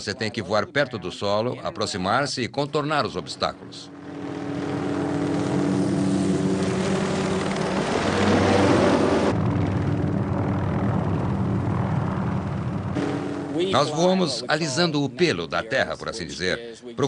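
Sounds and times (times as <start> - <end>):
helicopter rotor and turbine: 2.8 - 16.4.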